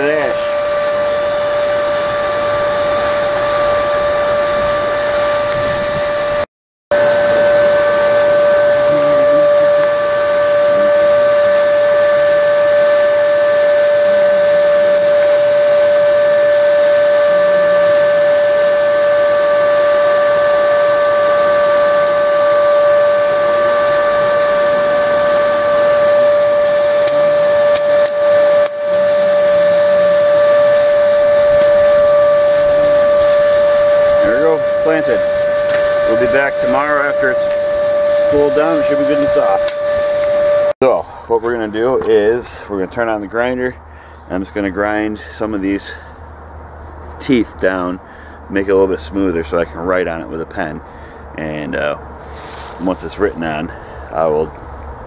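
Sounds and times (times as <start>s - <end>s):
rushing air and fire: 0.0s - 41.3s, 52.2s - 53.0s
air blower whine: 0.0s - 55.0s.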